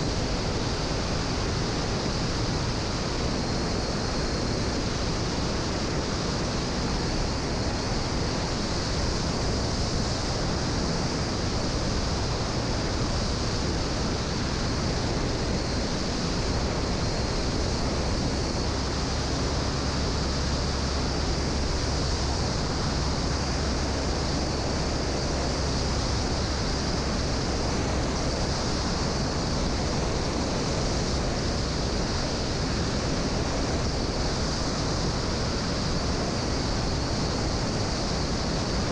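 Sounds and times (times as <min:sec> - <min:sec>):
airplane engine droning: 0:00.0 - 0:38.9
wind rushing over microphone: 0:00.0 - 0:38.9.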